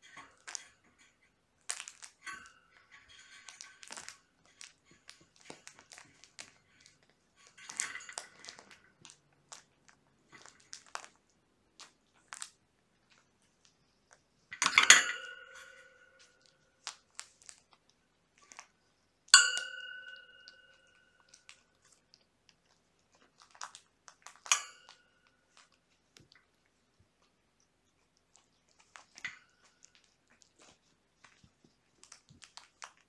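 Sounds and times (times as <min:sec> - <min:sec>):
kittens play-wrestling: 0:25.4 - 0:33.0.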